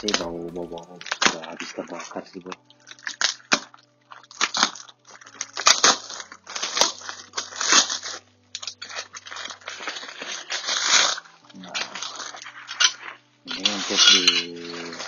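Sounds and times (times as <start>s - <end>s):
packaging crinkling: 1.0s - 15.0s.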